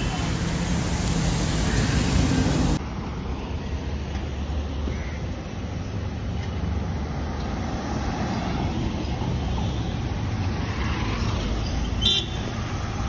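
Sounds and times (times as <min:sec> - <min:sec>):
van passing: 0:00.0 - 0:04.5
cars passing close by: 0:00.0 - 0:13.0.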